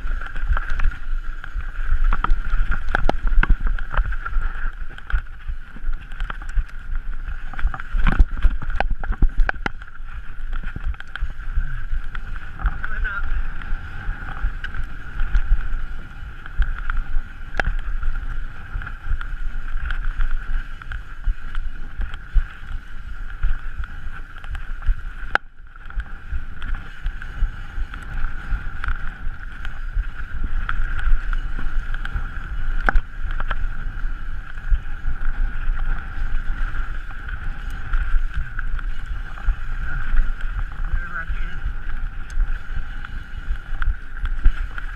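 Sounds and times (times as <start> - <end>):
bike knocking and rattling: 0.0 - 44.9
wind on microphone: 0.0 - 44.9.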